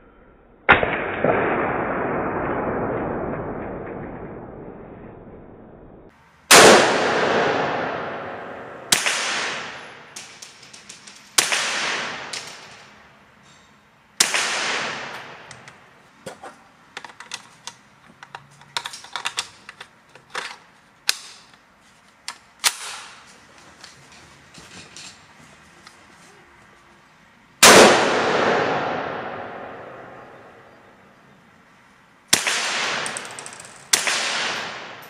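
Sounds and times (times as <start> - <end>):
sharp cracks: 0.7 - 13.2, 14.2 - 24.0, 27.6 - 30.7, 32.3 - 35.0
rifle shots ringing indoors: 6.5 - 13.1, 14.2 - 15.8, 27.6 - 30.8, 32.3 - 35.0.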